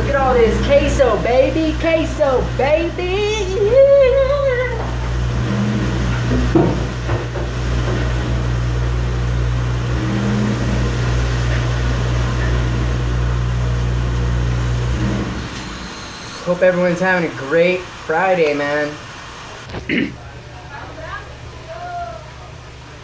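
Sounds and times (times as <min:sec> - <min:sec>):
spraying water rushing: 0:00.0 - 0:20.0
dishwasher hum: 0:00.0 - 0:23.0
person singing or talking: 0:01.2 - 0:04.8.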